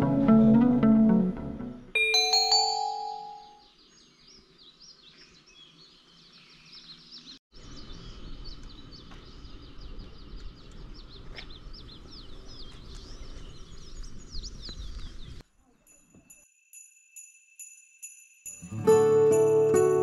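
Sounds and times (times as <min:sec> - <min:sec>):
small birds chirping: 0:03.0 - 0:16.4.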